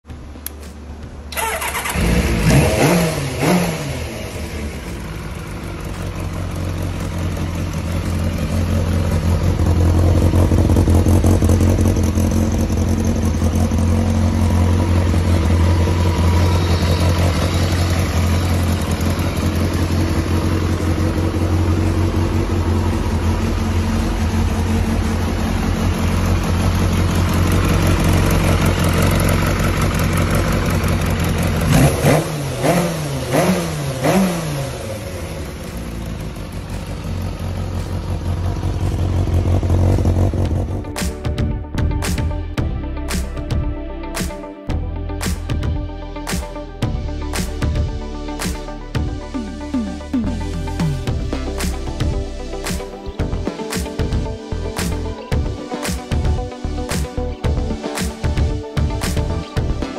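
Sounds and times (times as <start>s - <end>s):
motorcycle engine idling: 0.1s - 2.4s, 3.6s - 42.8s
motorcycle engine starting and revving: 0.1s - 43.7s, 45.3s - 59.9s.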